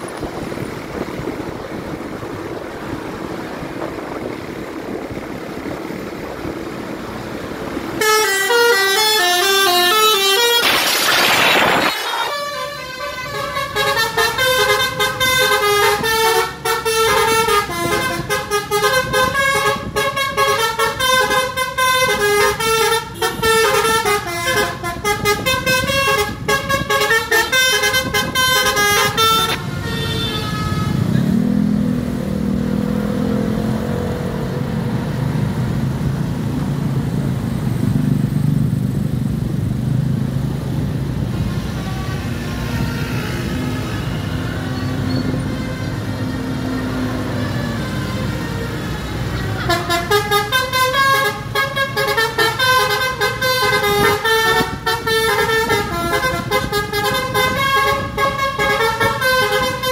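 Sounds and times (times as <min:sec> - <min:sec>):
bus engine revving: 0:00.0 - 0:59.9
bus horn playing a tune: 0:07.9 - 0:31.4, 0:41.4 - 0:59.9.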